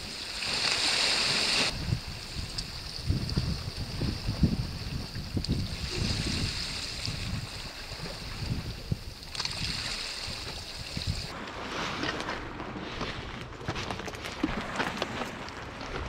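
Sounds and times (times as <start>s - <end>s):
sea waves on rocky shore: 0.0s - 2.4s, 3.8s - 12.6s
wind buffeting microphone: 1.6s - 11.4s.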